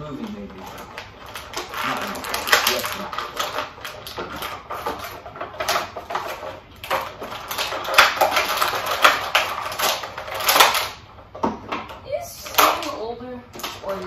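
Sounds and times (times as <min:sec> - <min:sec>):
plastic packaging crinkling: 0:00.1 - 0:11.0.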